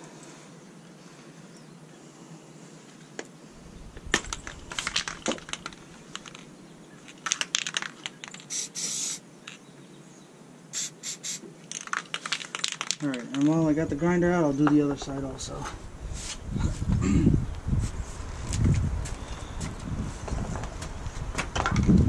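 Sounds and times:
spray paint hissing: 7.7s - 9.2s, 10.7s - 13.0s
spray can clicks: 8.0s - 9.2s.

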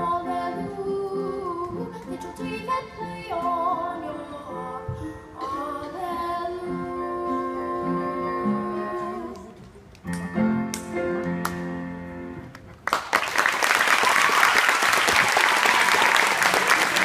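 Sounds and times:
upright piano chords: 10.1s - 12.6s
audience applause: 12.8s - 17.0s.

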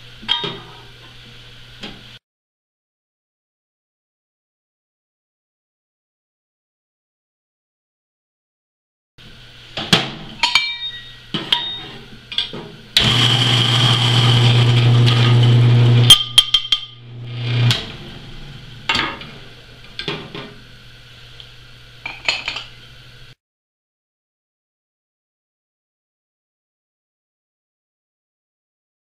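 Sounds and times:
low motor hum: 13.0s - 16.2s, 16.9s - 20.0s
coffee grinder grinding beans: 13.0s - 18.9s.

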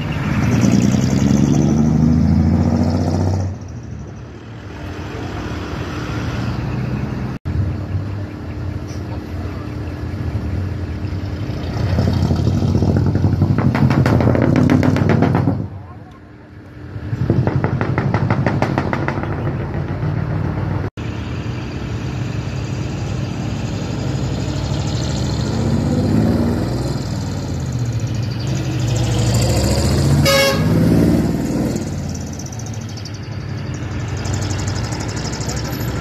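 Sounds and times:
diesel truck engines passing: 0.0s - 36.0s
short horn toot: 30.2s - 30.8s.

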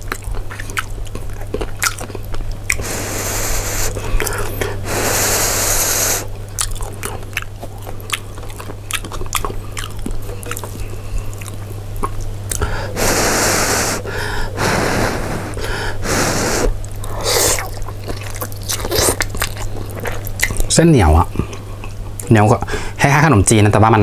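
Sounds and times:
wet chewing mouth clicks: 0.0s - 2.9s, 6.5s - 12.7s, 16.6s - 20.7s
noodles slurping: 1.5s - 7.3s, 12.5s - 20.3s.

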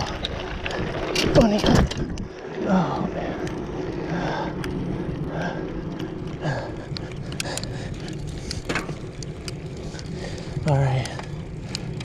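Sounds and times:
bike clicks and rattles: 0.0s - 12.0s
bike tyres humming on asphalt: 0.0s - 12.0s.

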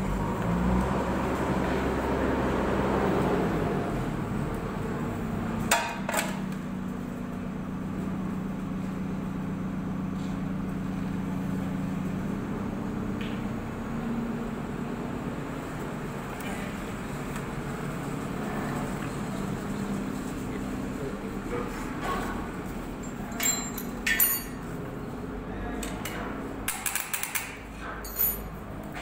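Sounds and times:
mechanical hum: 0.0s - 29.0s
sharp metallic clinks: 23.0s - 24.6s, 28.0s - 28.6s.

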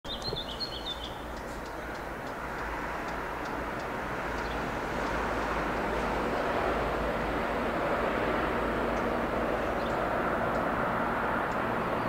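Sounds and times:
distant train rumble: 0.1s - 12.0s.

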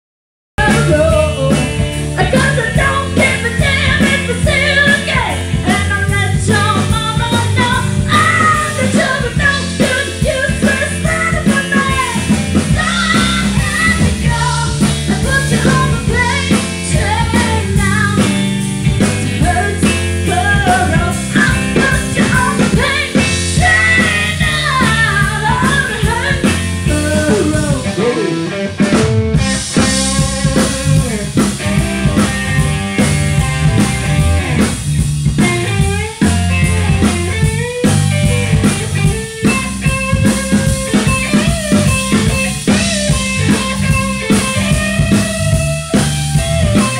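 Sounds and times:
woman singing: 0.6s - 18.5s, 19.2s - 28.1s
bass guitar: 0.6s - 46.9s
drum kit: 0.6s - 46.9s
electric guitars: 0.6s - 46.9s.

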